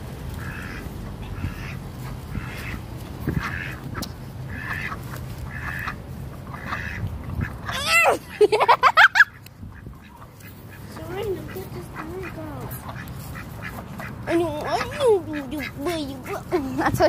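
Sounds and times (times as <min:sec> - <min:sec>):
ducks quacking: 0:00.3 - 0:17.0.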